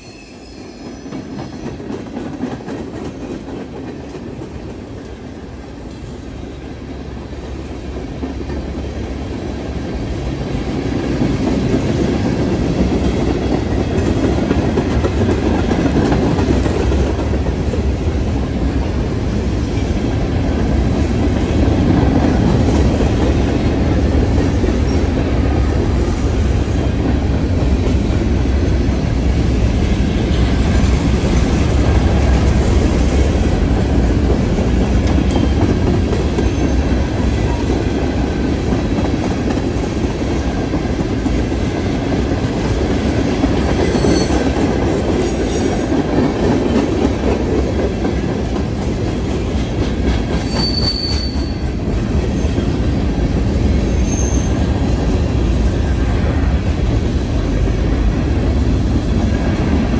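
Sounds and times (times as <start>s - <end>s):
train wheels rumbling on rails: 0.0s - 59.9s
high-pitched wheel squeals: 43.9s - 44.4s, 50.4s - 51.7s, 54.0s - 54.7s.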